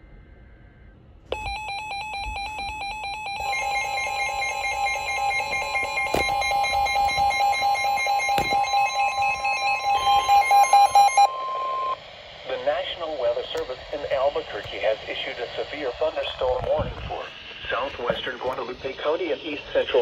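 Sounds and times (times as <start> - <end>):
steady single-pitch alert tone: 1.3 - 12.2.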